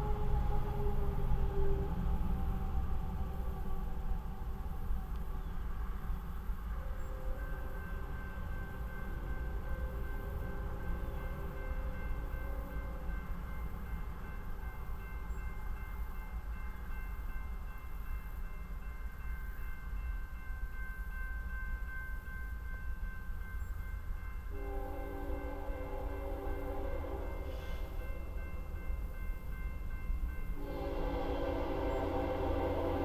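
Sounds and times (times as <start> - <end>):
train horn chord: 0.0 - 2.3, 24.5 - 28.8, 30.5 - 33.0
crossing signal bell ringing: 7.4 - 33.0.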